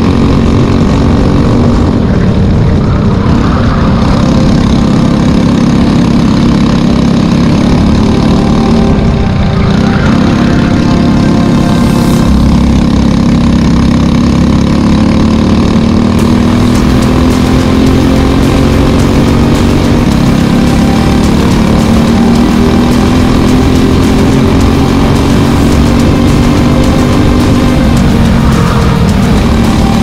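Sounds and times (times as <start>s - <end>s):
kart engine running: 0.0s - 30.0s.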